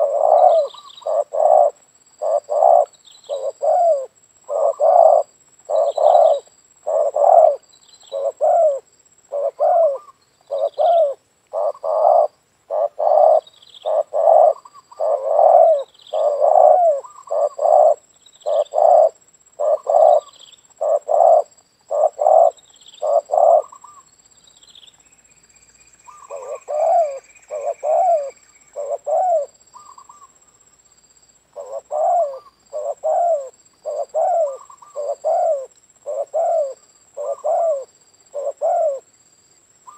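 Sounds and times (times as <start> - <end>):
dove cooing: 0.0 - 24.0, 26.1 - 30.3, 31.5 - 39.1.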